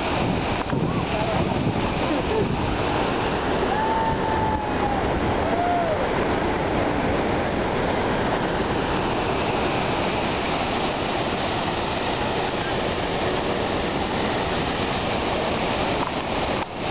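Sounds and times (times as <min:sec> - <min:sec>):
boat engine: 0:00.0 - 0:16.9
churning river water: 0:00.0 - 0:16.9.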